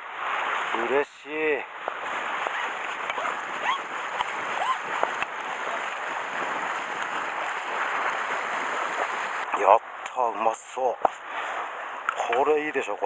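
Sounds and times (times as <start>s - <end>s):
sea water washing against rocks: 0.0s - 9.5s.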